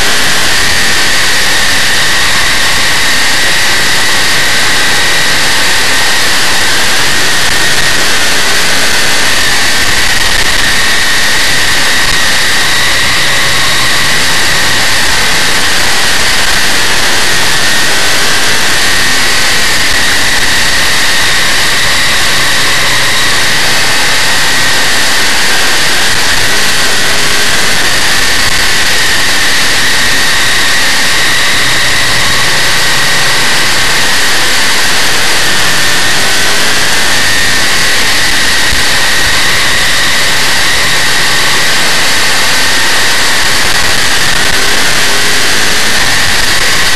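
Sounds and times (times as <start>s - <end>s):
high steady whine: 0.0s - 46.9s
race car engine at speed: 0.0s - 46.9s.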